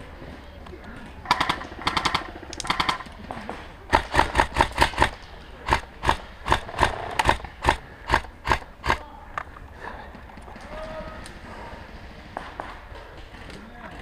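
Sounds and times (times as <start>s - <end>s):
airsoft gunfire: 1.3s - 3.1s, 3.9s - 9.0s.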